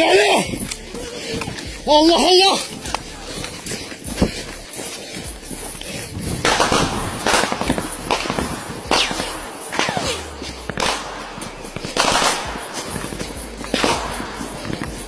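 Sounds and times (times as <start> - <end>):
gunshots with echo: 5.9 - 15.0.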